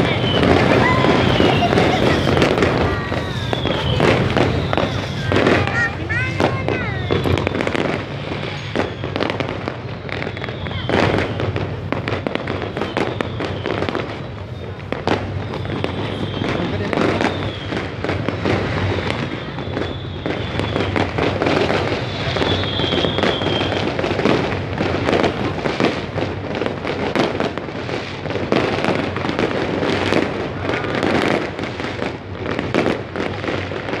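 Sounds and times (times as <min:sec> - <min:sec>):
fireworks bangs and crackling pops: 0:00.0 - 0:34.0
high firework whistles: 0:00.0 - 0:34.0.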